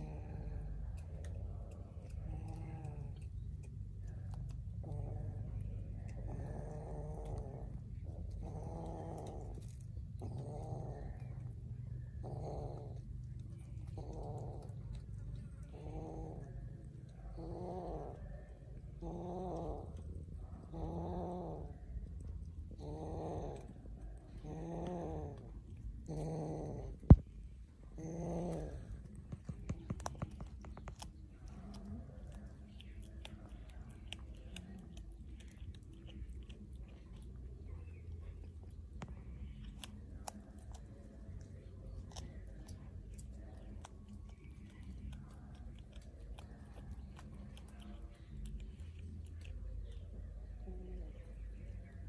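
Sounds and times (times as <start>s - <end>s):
kitten chewing fish: 0.0s - 52.0s
kitten growling: 0.0s - 52.0s
steady low rumble: 0.0s - 52.0s.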